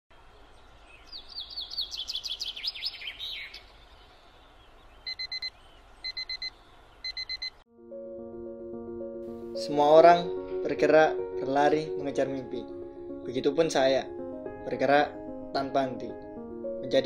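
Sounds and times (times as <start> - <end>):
birds chirping: 0.1 - 7.6
alarm clock beeping: 5.1 - 5.5, 6.1 - 6.5, 7.1 - 7.6.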